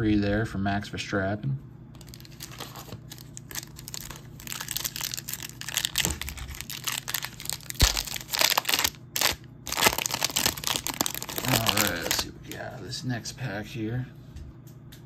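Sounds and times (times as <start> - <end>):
card pack wrapper crinkling and tearing: 2.0 - 12.3.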